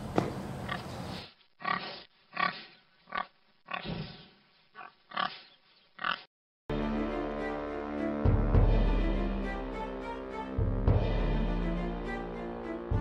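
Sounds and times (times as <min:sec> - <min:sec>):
pig grunting: 0:04.8 - 0:06.3
music: 0:06.7 - 0:13.0.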